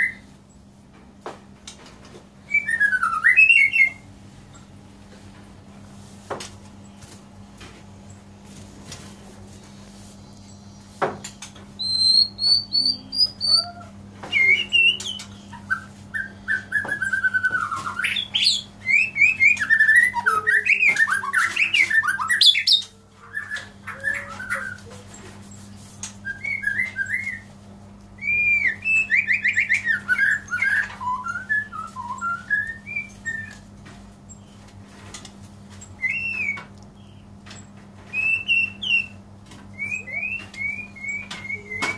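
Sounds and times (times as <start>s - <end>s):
bird singing whistled phrases: 2.5s - 4.0s, 11.8s - 24.9s, 26.2s - 27.5s, 28.2s - 33.6s, 36.0s - 36.7s, 38.1s - 39.2s, 39.8s - 41.9s.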